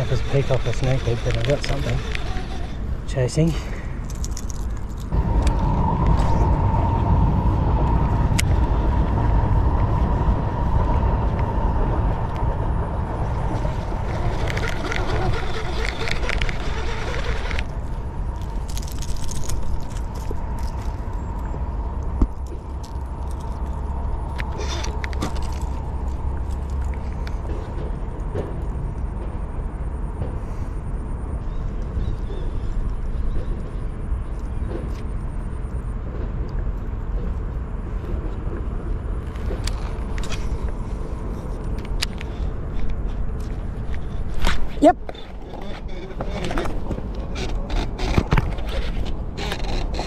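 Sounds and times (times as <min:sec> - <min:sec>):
faint reel clicks: 0:00.0 - 0:02.8
fishing reel whirring: 0:00.0 - 0:03.0, 0:13.5 - 0:17.9
wind buffeting microphone: 0:00.0 - 0:30.0
low rumble: 0:02.7 - 0:47.4.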